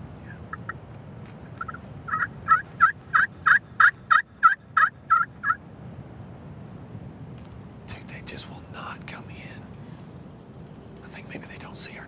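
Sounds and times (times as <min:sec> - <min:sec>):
turkey call raspy yelps: 0:01.6 - 0:05.6.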